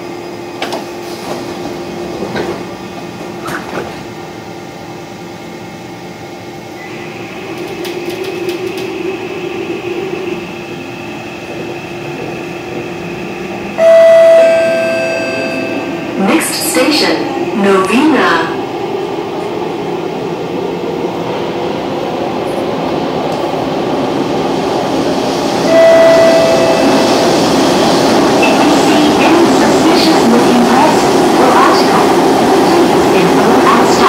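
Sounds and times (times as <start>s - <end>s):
train doors sliding shut: 0.5s - 4.2s, 6.9s - 9.1s
loud steady tone: 13.8s - 18.5s, 25.6s - 27.4s.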